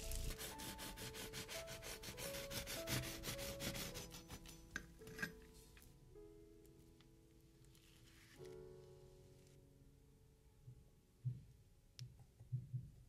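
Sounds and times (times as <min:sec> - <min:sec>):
knife sawing through pie crust: 0:00.0 - 0:04.6.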